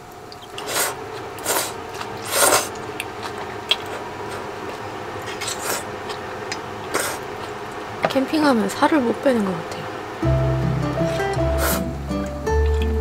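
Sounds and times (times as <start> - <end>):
person slurping noodles: 0.6 - 2.8, 6.9 - 7.2, 11.1 - 11.9.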